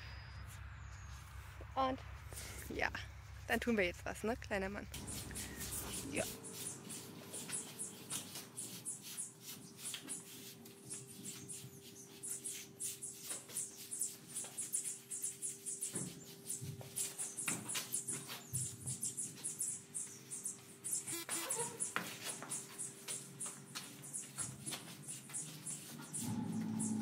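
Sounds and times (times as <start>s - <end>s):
brush strokes on horse coat: 5.0s - 18.8s, 21.9s - 26.6s.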